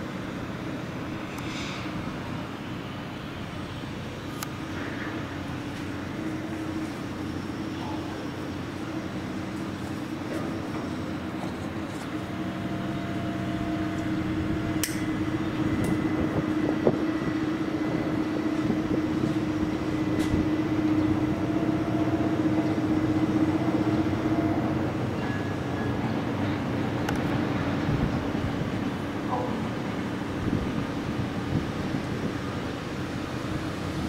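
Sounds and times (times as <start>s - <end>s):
heavy diesel machinery hum: 0.0s - 34.0s.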